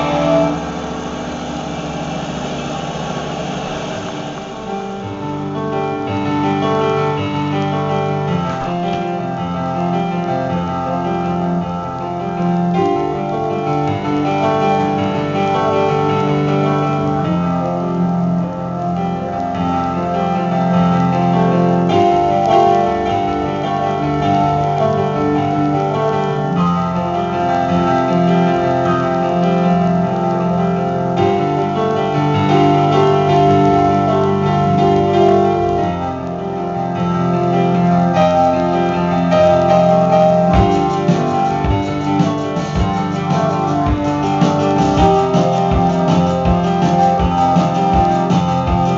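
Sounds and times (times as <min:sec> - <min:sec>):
live band music: 0:00.0 - 0:04.8, 0:39.5 - 0:48.9
keyboard chords: 0:00.0 - 0:48.9.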